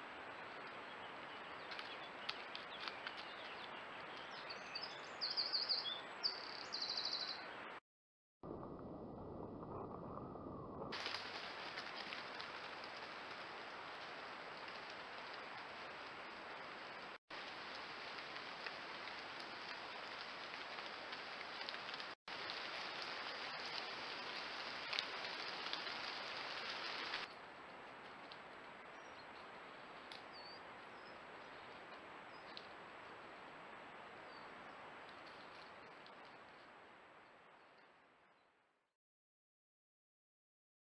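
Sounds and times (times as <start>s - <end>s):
forest ambience hiss: 0.0s - 7.7s, 11.0s - 37.9s
faint bird chirps: 0.4s - 7.5s.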